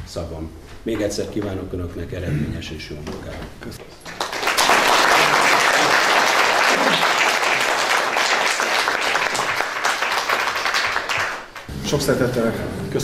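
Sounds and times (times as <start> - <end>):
audience applauding: 4.0 - 11.7.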